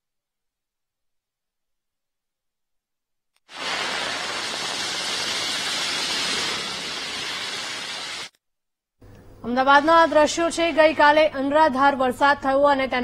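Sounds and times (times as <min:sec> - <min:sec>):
steady hiss: 0:03.5 - 0:08.3.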